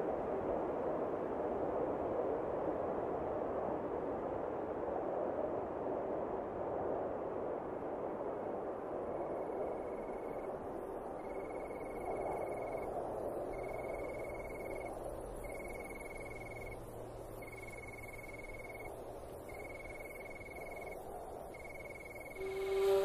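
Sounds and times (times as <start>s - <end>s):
soft steady rushing background: 0.0s - 23.0s
cricket trilling: 9.2s - 23.0s.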